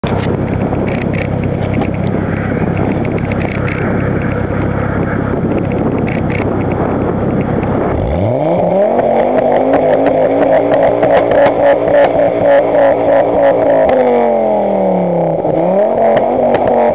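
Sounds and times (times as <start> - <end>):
car exhaust crackling pops: 0.0 - 14.4, 15.4 - 16.9
car engine revving: 0.0 - 16.9.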